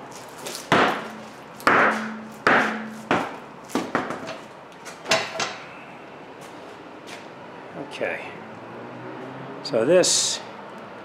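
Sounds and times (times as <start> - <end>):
rubber mallet striking steel wheel: 0.7 - 4.4.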